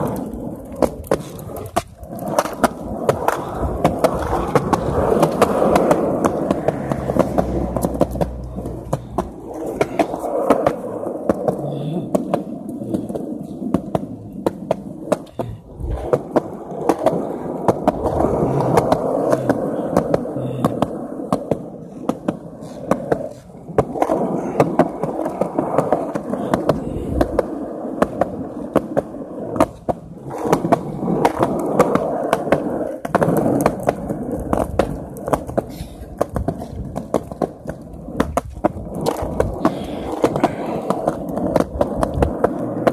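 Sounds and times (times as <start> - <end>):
hard wheels rolling on pavement: 0.0 - 42.9.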